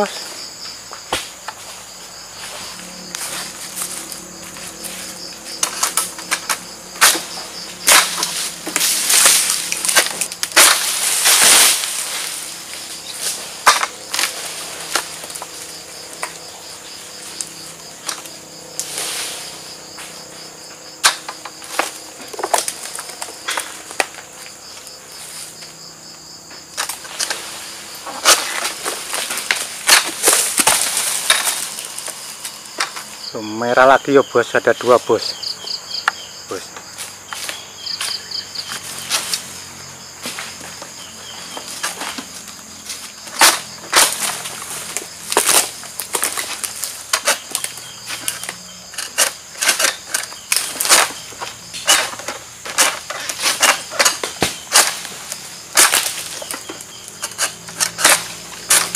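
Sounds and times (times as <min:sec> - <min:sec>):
fronds rustling: 0:00.0 - 0:33.6, 0:34.8 - 0:58.9
insects shrilling: 0:00.0 - 0:58.9
sickle clicking and knocking: 0:05.6 - 0:16.4, 0:21.0 - 0:24.2, 0:26.7 - 0:27.4, 0:28.0 - 0:32.2, 0:40.2 - 0:58.9.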